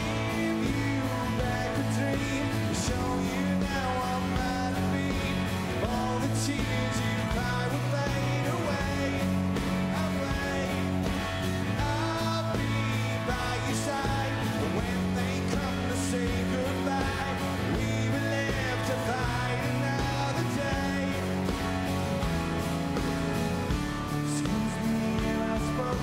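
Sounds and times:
man singing: 0:00.0 - 0:21.6, 0:24.0 - 0:26.0
rock band playing: 0:00.0 - 0:26.0.

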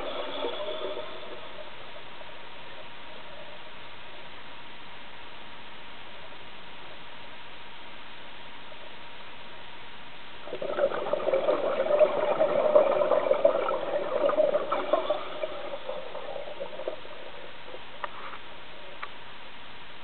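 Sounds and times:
air bubbles gurgling: 0:00.0 - 0:03.8, 0:10.4 - 0:19.0.

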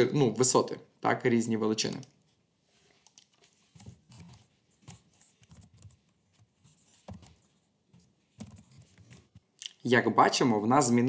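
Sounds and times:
typing on a keyboard: 0:04.9 - 0:06.0, 0:08.4 - 0:09.2.

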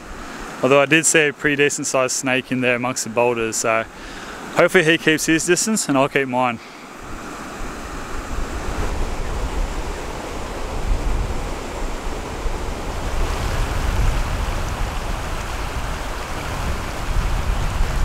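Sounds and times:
river rapids rushing over boulders: 0:06.8 - 0:18.0.

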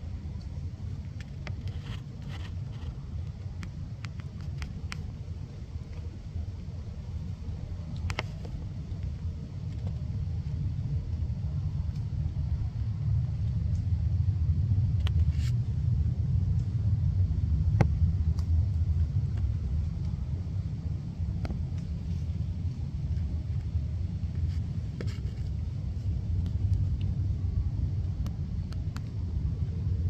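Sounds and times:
low rumble: 0:00.0 - 0:30.0.

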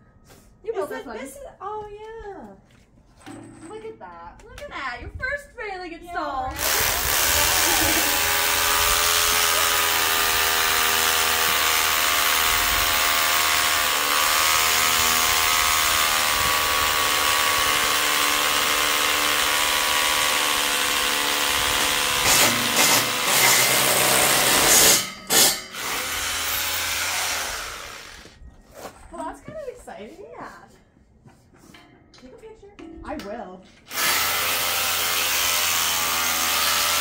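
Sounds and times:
hammer drill boring into concrete: 0:06.6 - 0:28.4, 0:33.9 - 0:37.0.

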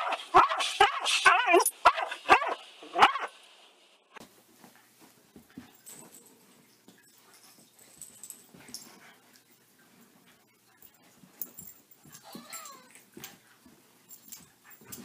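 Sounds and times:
dog barking: 0:00.0 - 0:03.3.

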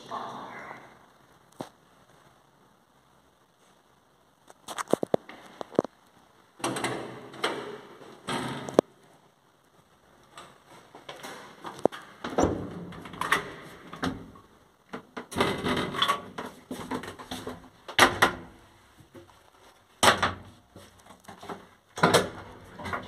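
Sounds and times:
lift doors opening and shutting: 0:06.6 - 0:08.8, 0:11.1 - 0:14.4.

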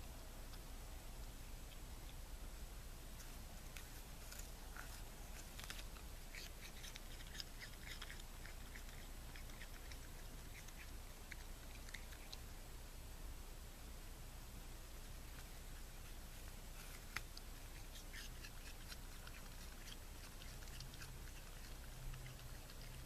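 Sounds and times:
raccoon chewing an apple: 0:03.2 - 0:12.6, 0:15.1 - 0:23.0.

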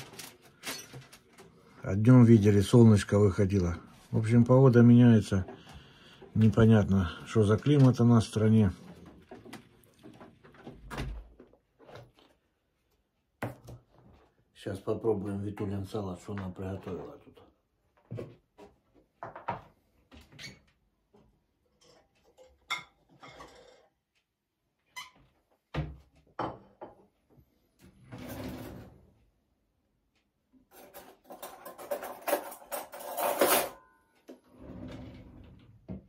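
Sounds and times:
plate and utensils clattering: 0:30.7 - 0:34.0.

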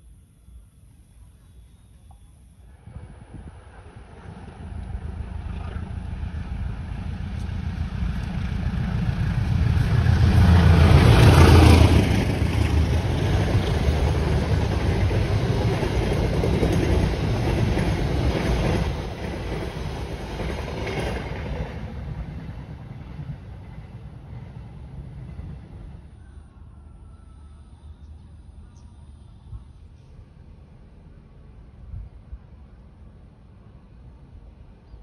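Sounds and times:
train wheels rumbling on rails: 0:02.7 - 0:26.3
locomotive engine: 0:02.8 - 0:26.1.

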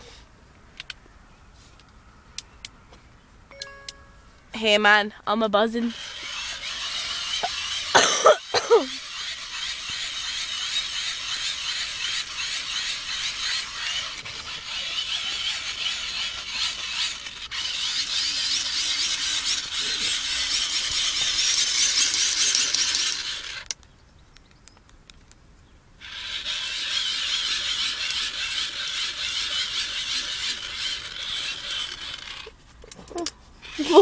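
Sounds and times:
geared whirring whine of crank: 0:05.8 - 0:23.7, 0:26.0 - 0:32.6.

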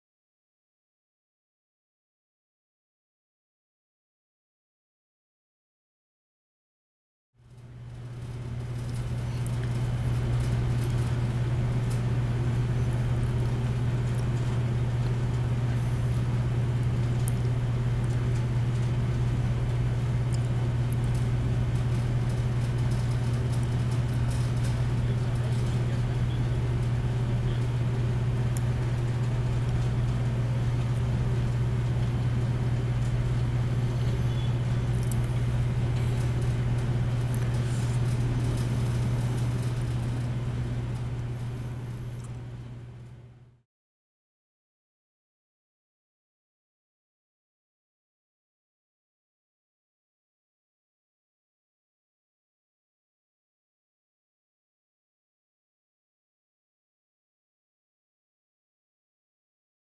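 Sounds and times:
steady low hum: 0:07.4 - 0:43.6.

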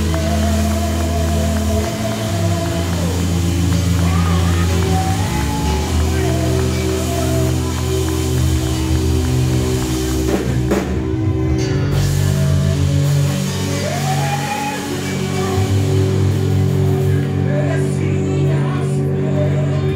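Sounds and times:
lead singer singing: 0:00.0 - 0:09.1, 0:12.3 - 0:19.9
worship band playing: 0:00.0 - 0:19.9.

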